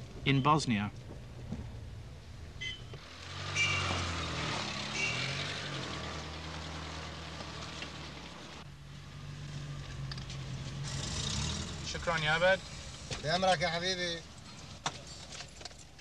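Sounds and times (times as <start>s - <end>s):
car driving by: 3.0s - 13.1s.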